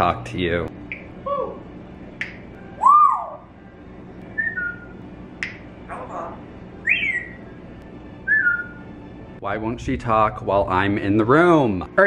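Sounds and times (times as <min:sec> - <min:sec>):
parrot whistling: 0:02.8 - 0:03.5, 0:04.3 - 0:07.5, 0:08.2 - 0:08.8.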